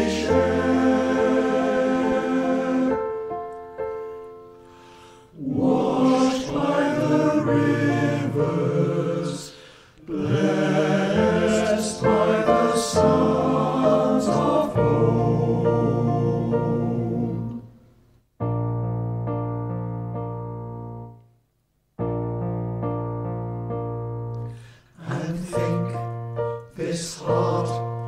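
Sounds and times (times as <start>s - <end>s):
male choir singing: 0.0s - 3.3s, 5.4s - 17.7s, 25.0s - 26.0s, 26.7s - 28.0s.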